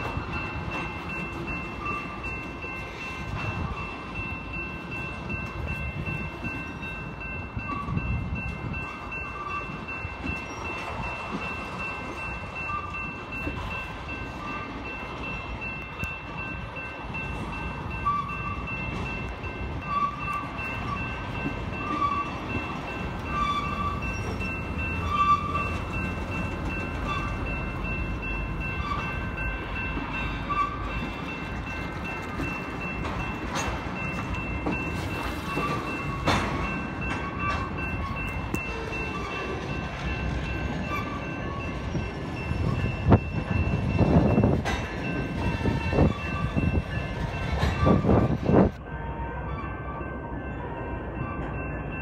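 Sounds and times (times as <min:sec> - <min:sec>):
crossing bell dinging: 0:00.0 - 0:52.0
freight train rumbling: 0:00.0 - 0:52.0.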